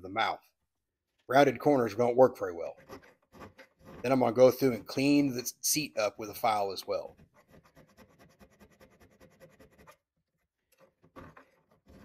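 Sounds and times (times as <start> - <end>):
hand file rasping on brass: 2.7 - 4.2, 7.1 - 10.0.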